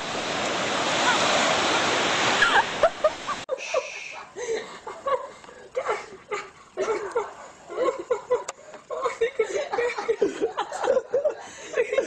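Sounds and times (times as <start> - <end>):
ocean surf: 0.0 - 4.2
people chuckling and snickering: 2.4 - 12.0.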